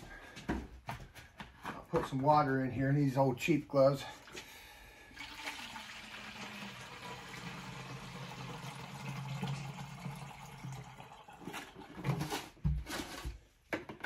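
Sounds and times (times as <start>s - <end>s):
water pouring into plastic jug: 4.1s - 12.2s.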